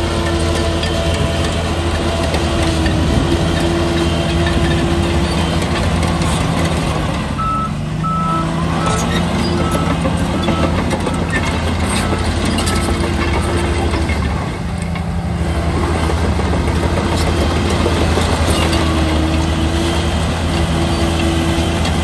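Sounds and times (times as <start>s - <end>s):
diesel machinery running: 0.0s - 22.0s
reversing beeper: 7.4s - 13.4s.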